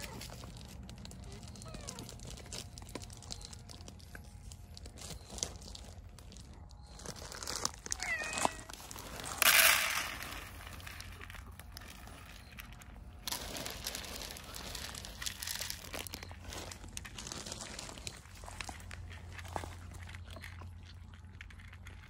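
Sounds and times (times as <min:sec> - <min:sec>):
plastic bag crinkling: 0:00.0 - 0:22.0
dry cat food poured onto plates: 0:07.4 - 0:18.8
cat meowing: 0:07.9 - 0:08.7.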